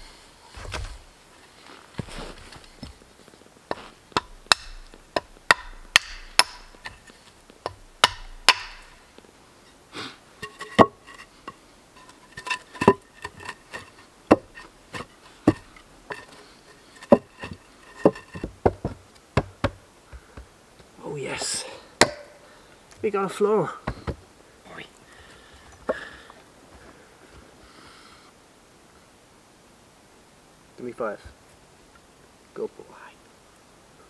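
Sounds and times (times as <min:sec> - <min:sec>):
hammering on wood: 0:04.2 - 0:07.0, 0:07.7 - 0:08.9, 0:18.0 - 0:20.5, 0:22.0 - 0:22.4.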